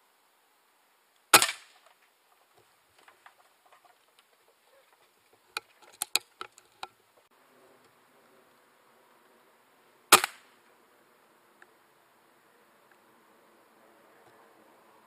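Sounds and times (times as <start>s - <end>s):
air rifle shot: 1.3s - 1.8s, 10.1s - 10.6s.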